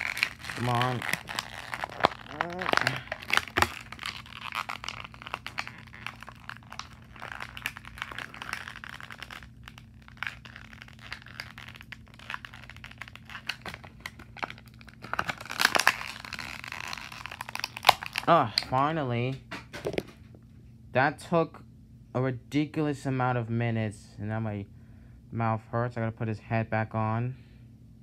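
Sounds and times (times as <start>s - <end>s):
plastic packaging crinkling: 0.0s - 18.9s.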